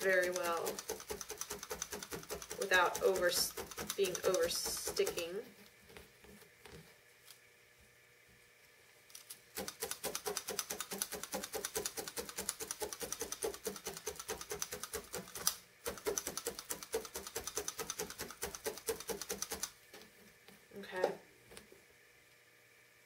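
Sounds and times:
felting needles stabbing into pad: 0.1 - 5.3, 9.1 - 19.7.

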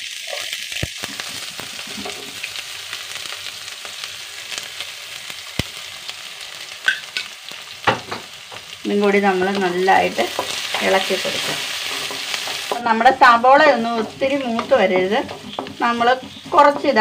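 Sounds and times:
oil sizzling in a pan: 0.0 - 17.0.

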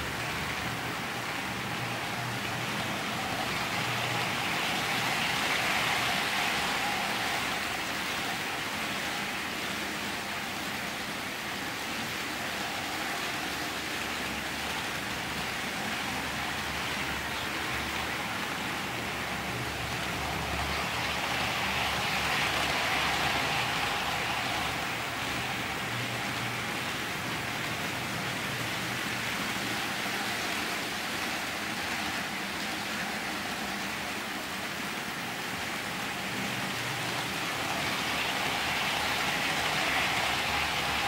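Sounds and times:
model trains rolling on track: 0.0 - 41.0.

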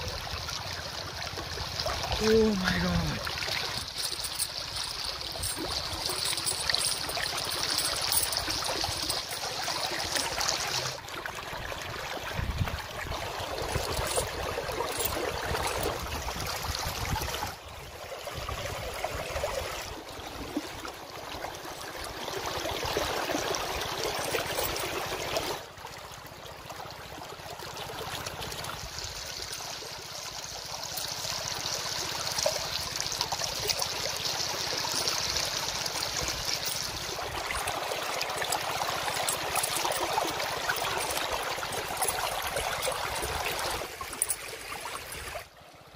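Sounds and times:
river water rushing over rocks: 0.0 - 17.2, 28.6 - 45.5.

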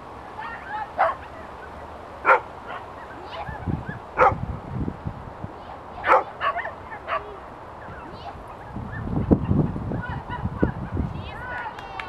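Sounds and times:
dog barking: 1.0 - 1.2, 2.2 - 2.9, 4.2 - 4.4, 6.0 - 7.4.

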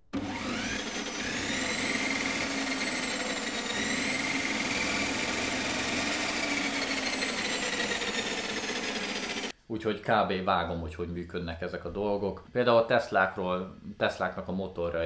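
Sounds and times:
electric motor whine: 0.1 - 9.5
rushing mechanical noise: 0.2 - 9.5.

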